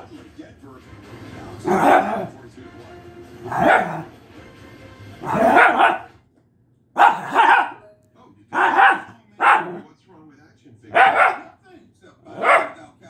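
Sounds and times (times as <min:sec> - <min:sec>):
small dog barking: 0:01.7 - 0:02.3, 0:03.4 - 0:04.1, 0:05.2 - 0:06.1, 0:07.0 - 0:07.9, 0:08.5 - 0:09.8, 0:10.9 - 0:11.6, 0:12.3 - 0:12.8.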